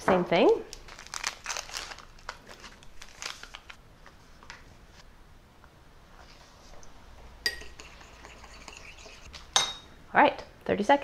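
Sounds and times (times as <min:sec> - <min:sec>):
foil packet crinkling: 0:00.7 - 0:03.8.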